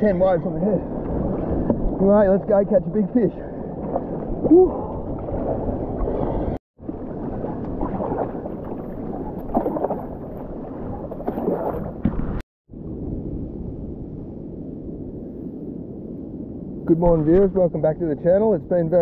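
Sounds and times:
water splashing: 0:01.0 - 0:12.4
water sloshing around kayak: 0:03.2 - 0:12.4.

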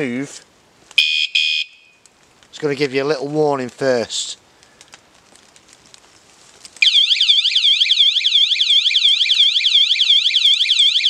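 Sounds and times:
bike alarm siren warbling: 0:01.0 - 0:02.0, 0:06.8 - 0:11.0.

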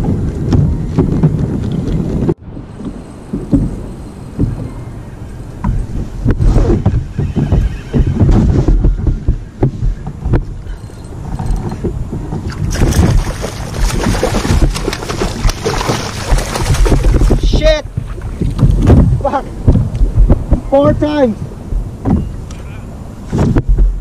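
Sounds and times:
wind rumble on microphone: 0:00.0 - 0:24.0
water splashing against kayak: 0:11.7 - 0:20.7.

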